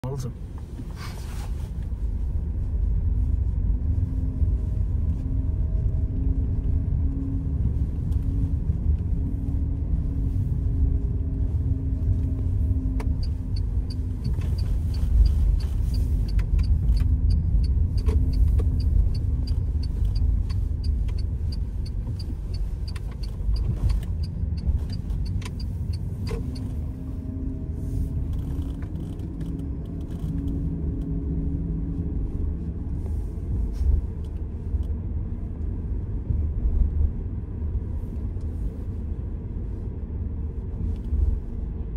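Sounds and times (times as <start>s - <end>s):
car engine and road rumble: 0.0s - 41.9s
light regular ticking: 13.0s - 26.8s.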